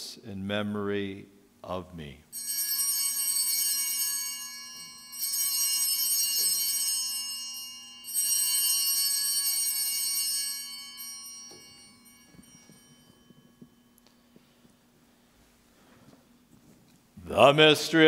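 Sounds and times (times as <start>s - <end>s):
altar bells ringing: 2.3s - 14.9s.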